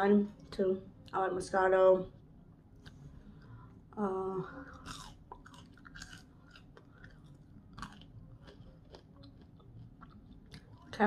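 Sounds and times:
person chewing crunchy fries: 4.6s - 11.0s.

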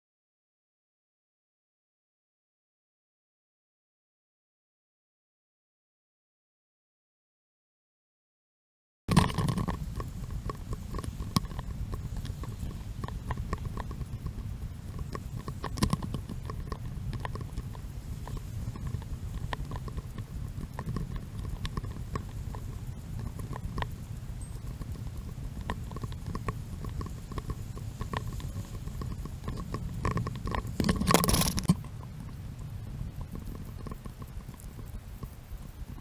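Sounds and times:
steady low rumble: 9.1s - 36.0s.

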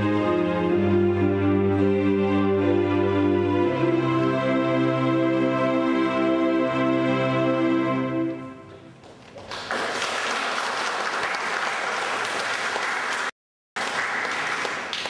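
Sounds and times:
held musical chord: 0.0s - 8.8s
audience applauding: 9.0s - 15.0s.

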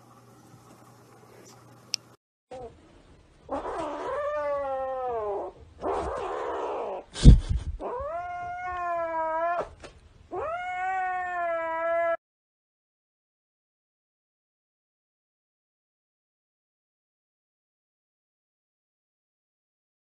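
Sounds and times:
kitten yowling: 3.5s - 7.1s, 7.8s - 12.2s.

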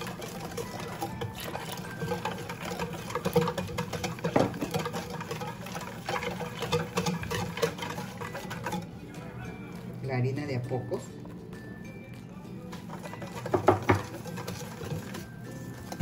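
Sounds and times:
whisk clicking against metal bowl: 0.0s - 8.9s, 12.7s - 16.0s
batter sloshing: 0.0s - 11.1s, 12.6s - 16.0s.

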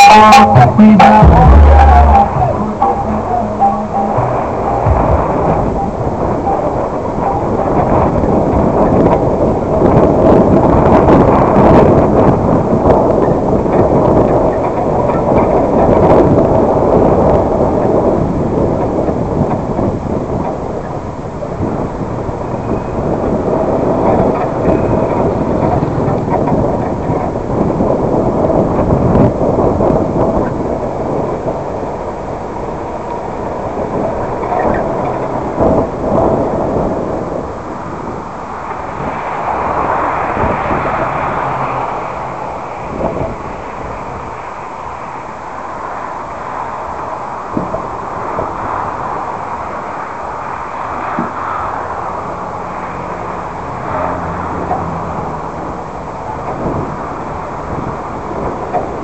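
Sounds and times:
thumps: 0.0s - 8.3s
car tyres rumbling on dirt road: 0.0s - 59.0s.

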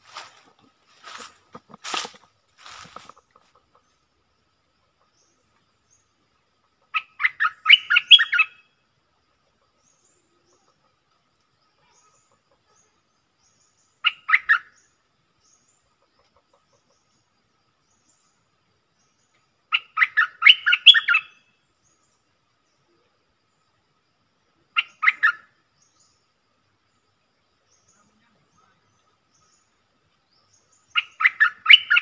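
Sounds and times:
bulbul singing: 7.0s - 8.7s, 30.4s - 32.0s.

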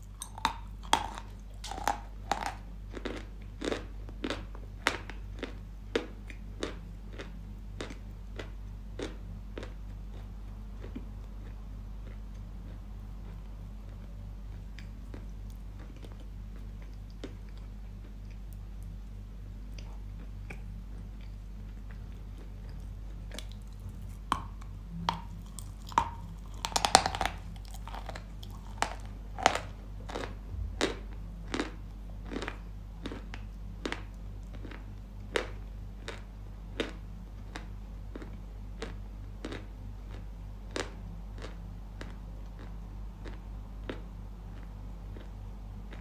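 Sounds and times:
chalk being bitten and chewed: 19.7s - 30.2s.

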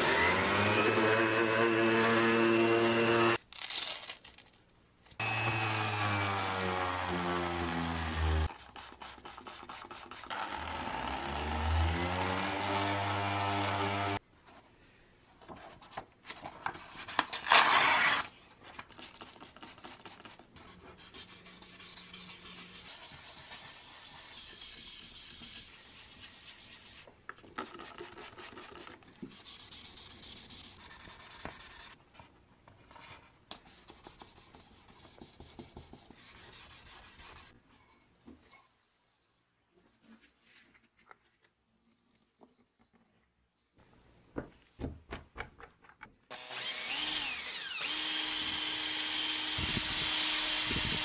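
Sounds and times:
sandpaper rasping on resin: 8.4s - 10.3s, 19.0s - 27.1s, 27.7s - 32.0s, 33.6s - 37.6s.

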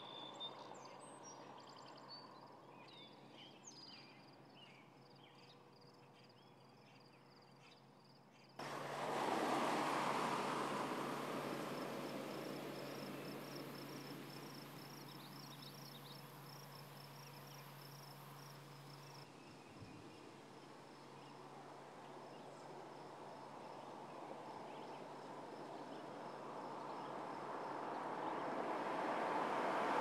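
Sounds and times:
insects chirping: 8.0s - 19.4s, 20.4s - 30.0s
approaching car engine and road noise: 8.6s - 19.4s, 20.2s - 30.0s.

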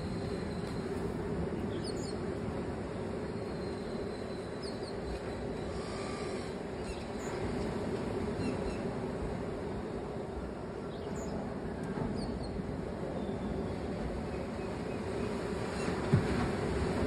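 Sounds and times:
sea surf washing on beach: 12.6s - 17.0s.

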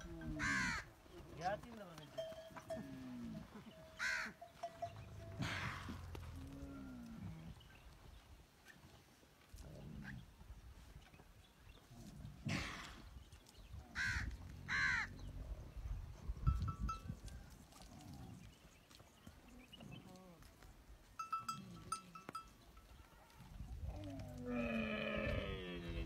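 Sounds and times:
camel high-pitched calls: 0.0s - 0.9s, 2.6s - 7.0s
camels grumbling: 2.2s - 7.6s, 11.9s - 13.1s, 23.2s - 26.0s.

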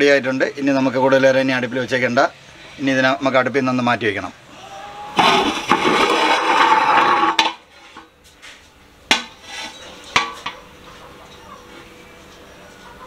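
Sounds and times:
pot lid scraping rattle: 5.2s - 8.1s.

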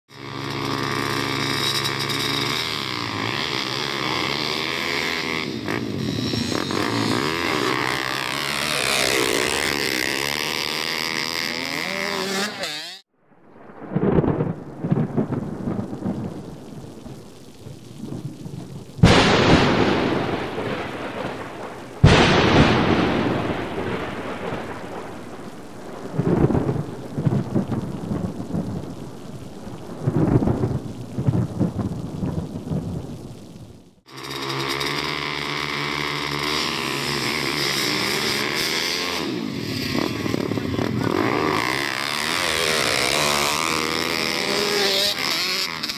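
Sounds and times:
rain: 0.1s - 11.6s, 13.0s - 45.9s
pit bike engines revving: 0.1s - 13.1s, 34.1s - 45.9s
loud thunder cracks: 13.2s - 33.8s
rumbling thunder: 13.2s - 34.0s.

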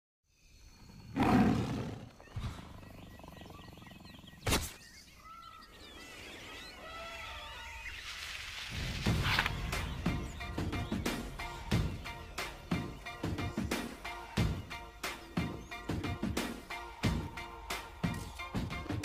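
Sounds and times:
birds chirping: 0.3s - 19.0s
faint jungle ambience: 0.3s - 19.0s
big cat roaring: 1.1s - 4.4s.

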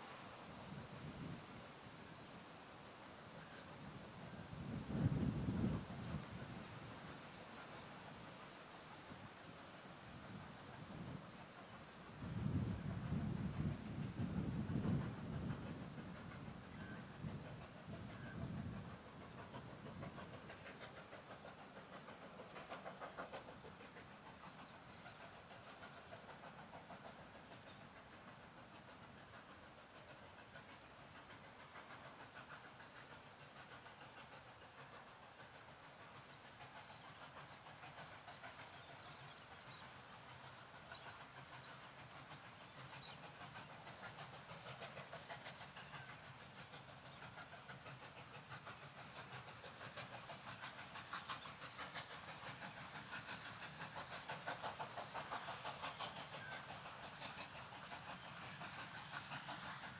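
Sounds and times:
distant steam locomotive exhaust beats: 0.0s - 59.9s.

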